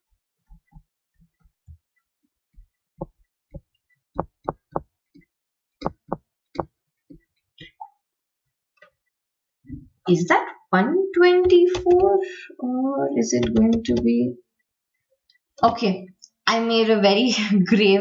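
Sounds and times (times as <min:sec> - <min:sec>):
stylus tapping on drawing tablet: 0:02.6 - 0:07.8, 0:11.2 - 0:12.4, 0:13.3 - 0:14.2.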